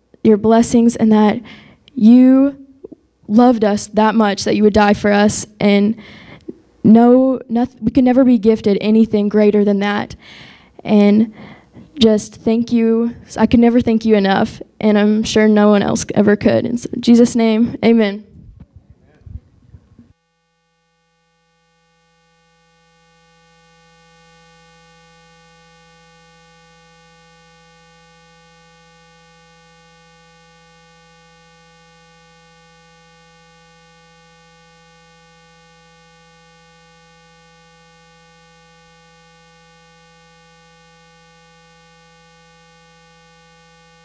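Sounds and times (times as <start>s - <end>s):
steady electrical hum and buzz: 0.0s - 44.0s.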